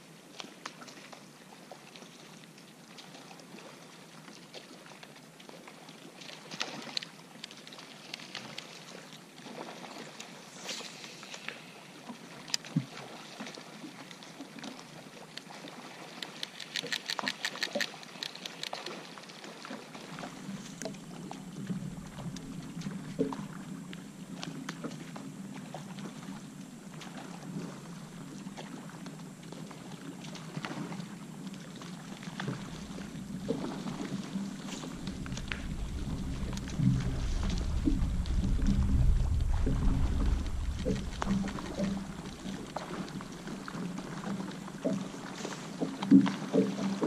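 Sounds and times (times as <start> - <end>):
light splashing water: 0.3 - 47.0
rattling clicks: 16.2 - 18.8
scattered clicks: 16.2 - 18.9
low steady hum: 20.1 - 46.0.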